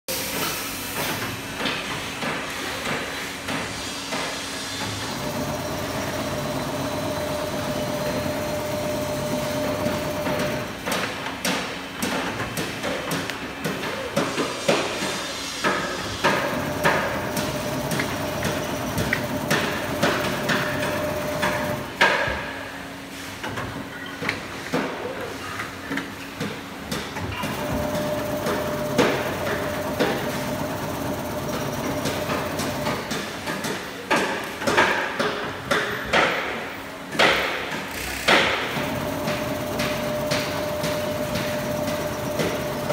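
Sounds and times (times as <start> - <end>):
constant machine hum: 1.0 - 42.9
machine whine: 4.8 - 10.8, 16.2 - 22.0, 27.4 - 33.1, 38.6 - 42.9.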